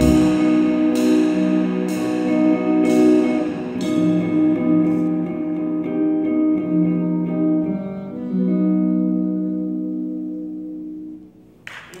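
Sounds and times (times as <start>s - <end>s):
jazz combo with electric guitar: 0.0s - 11.1s.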